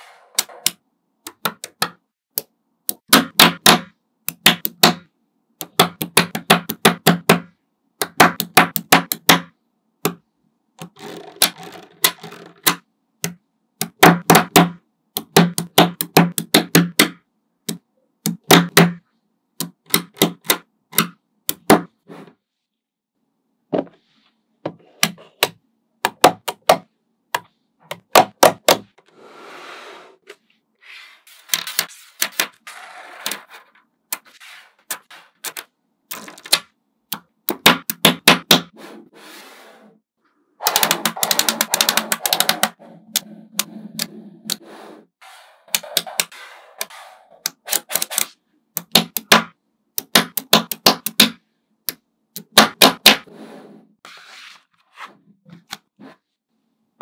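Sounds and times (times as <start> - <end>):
magnetic balls clicking: 40.7 - 44.6, 47.4 - 53.0.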